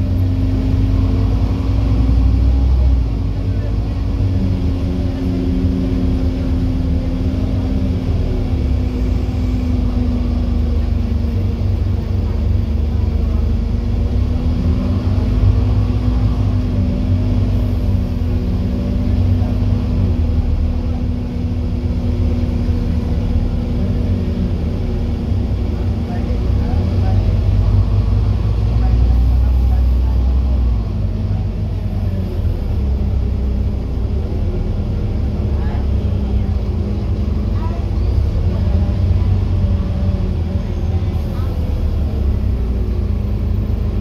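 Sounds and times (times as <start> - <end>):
bus engine drone: 0.0 - 44.0.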